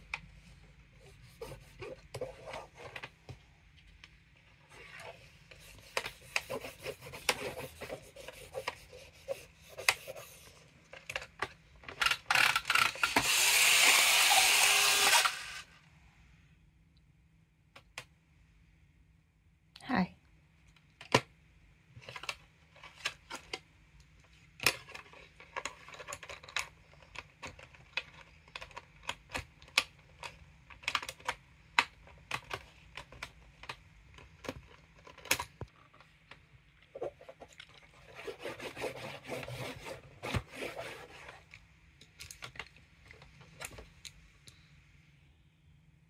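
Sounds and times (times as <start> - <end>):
pen scratching on screen: 4.9 - 10.6.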